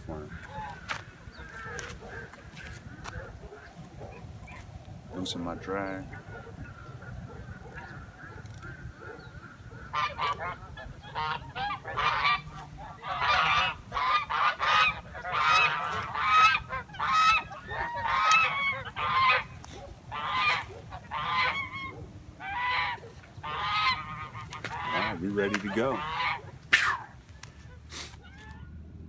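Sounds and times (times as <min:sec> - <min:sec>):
geese honking: 0:00.0 - 0:28.9.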